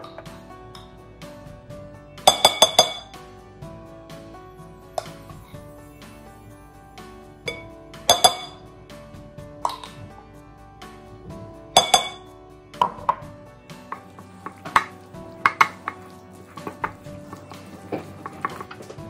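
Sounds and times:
soft background music: 0.0s - 19.0s
utensil clinking glass bowl: 2.3s - 3.1s, 7.4s - 8.6s, 11.8s - 13.2s, 13.8s - 19.0s
wooden spoon stirring in bowl: 13.8s - 19.0s.

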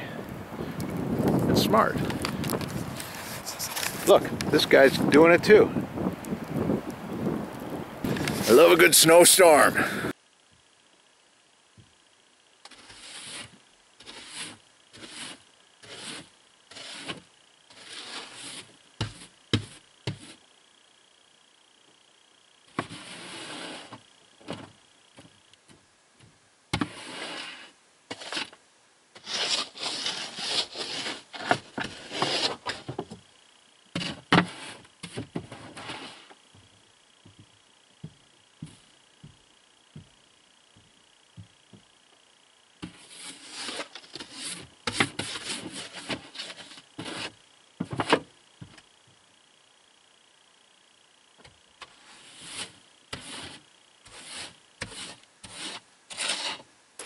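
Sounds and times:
brush scraping snow off glass: 1.2s - 5.2s, 12.7s - 20.4s, 22.7s - 24.0s, 26.8s - 28.6s, 29.2s - 33.0s, 33.9s - 36.4s, 42.8s - 47.4s, 51.9s - 56.7s.

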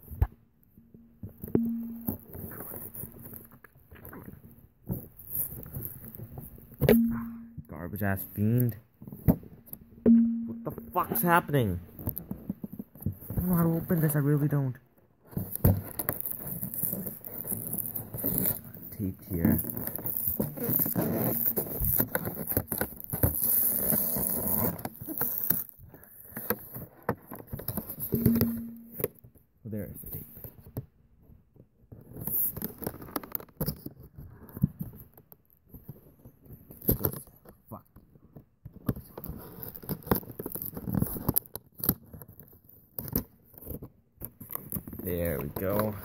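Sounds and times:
knife scraping packaging tape: 19.6s - 25.8s.

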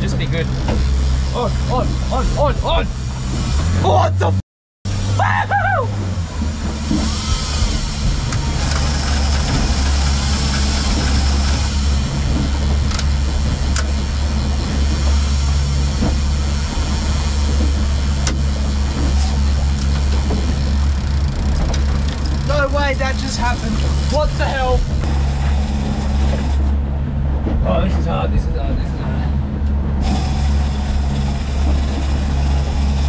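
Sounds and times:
boat engine drone: 0.0s - 33.0s
wake water rushing: 0.0s - 33.0s.

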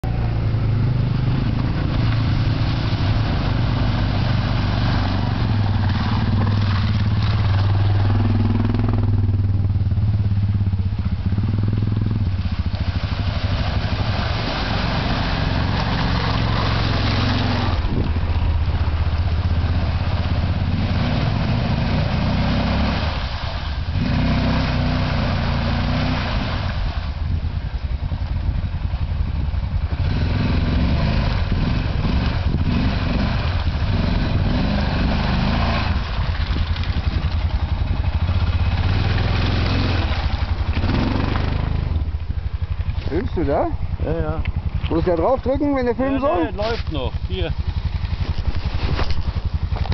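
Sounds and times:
quad engine revving: 0.1s - 9.7s, 12.9s - 18.3s, 18.9s - 23.3s, 24.0s - 26.7s, 30.0s - 36.2s, 38.3s - 42.1s.

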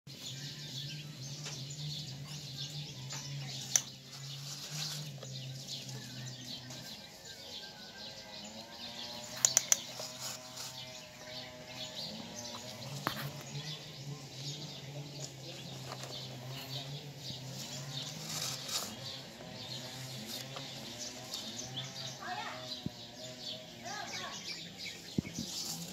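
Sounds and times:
birds chirping: 0.1s - 25.9s.

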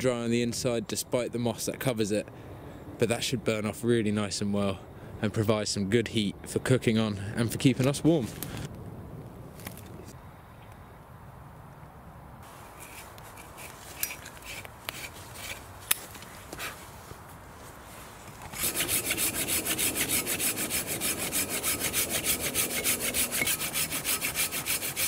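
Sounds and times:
pull saw cutting a log: 12.8s - 15.6s, 18.5s - 25.0s.

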